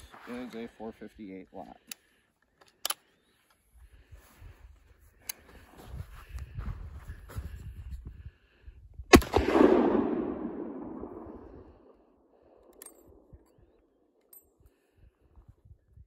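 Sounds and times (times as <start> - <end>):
faint metallic rifle action click: 1.8 - 3.6
rifle gunshot with rolling echo: 9.1 - 12.4.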